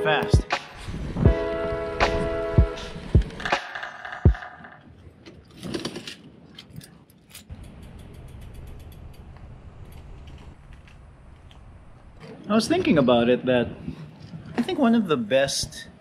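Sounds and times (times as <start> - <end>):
music with a beat: 0.0 - 4.4
bicycle freewheel ticking: 7.5 - 10.0.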